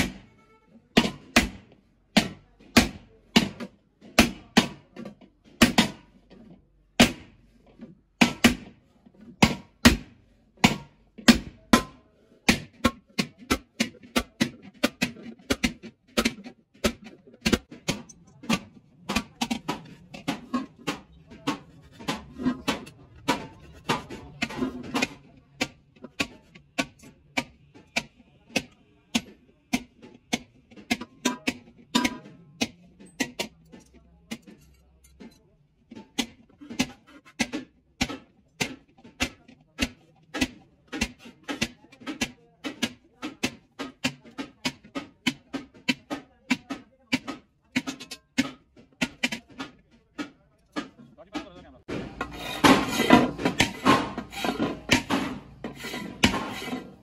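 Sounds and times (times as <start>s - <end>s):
hammer clanging on metal pan: 30.3s - 33.6s, 51.9s - 57.0s.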